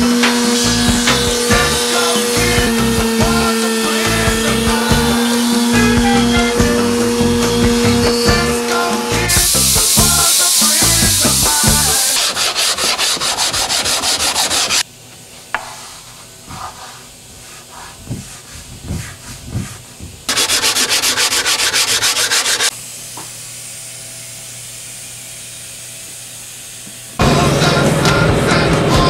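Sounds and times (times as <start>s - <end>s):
pneumatic grinder sanding: 0.0s - 14.8s, 15.6s - 27.1s
steady air hiss: 8.7s - 14.9s, 15.6s - 27.2s.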